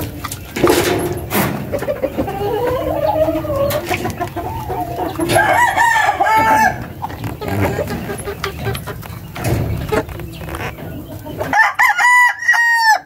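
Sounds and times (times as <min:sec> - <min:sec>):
rooster crowing: 0:04.4 - 0:06.8, 0:11.5 - 0:13.0.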